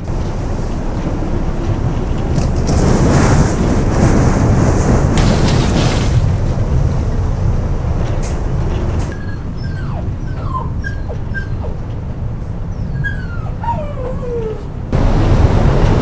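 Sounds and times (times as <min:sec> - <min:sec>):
hurricane wind roaring: 0:00.0 - 0:16.0
small dog whimpering: 0:09.1 - 0:11.8, 0:12.7 - 0:14.7.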